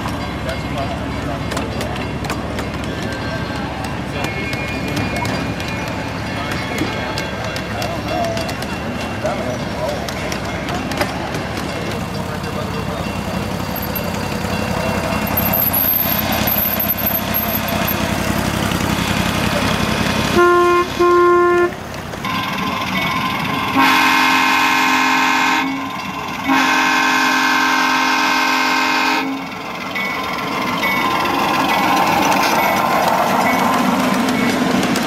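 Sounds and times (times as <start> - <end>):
diesel locomotive engine running: 0.0 - 35.0
locomotive horn: 20.2 - 22.7, 23.7 - 29.5.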